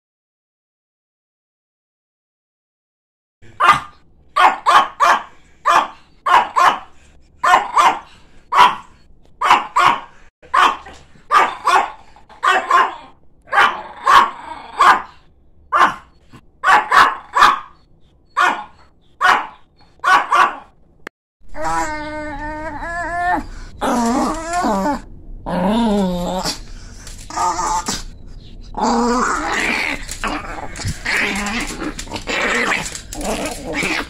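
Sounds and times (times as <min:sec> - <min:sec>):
dog barking sharply: 0:03.6 - 0:15.1, 0:15.7 - 0:17.8, 0:18.4 - 0:20.7.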